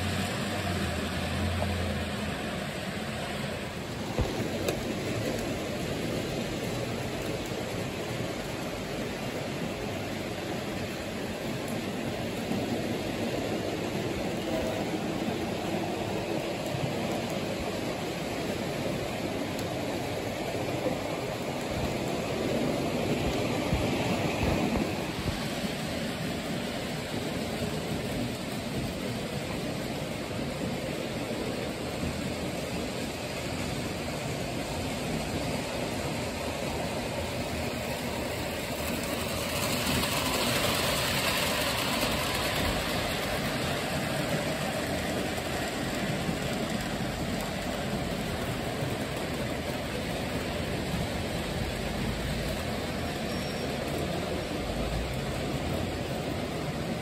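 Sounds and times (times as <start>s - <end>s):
steady background hiss: 0.0s - 57.0s
model train wheels rattling: 21.2s - 57.0s.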